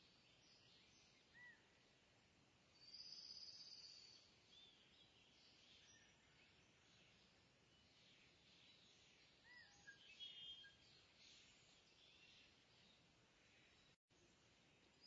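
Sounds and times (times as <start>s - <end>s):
faint hiss: 0.0s - 15.0s
bird chirps: 2.8s - 13.0s.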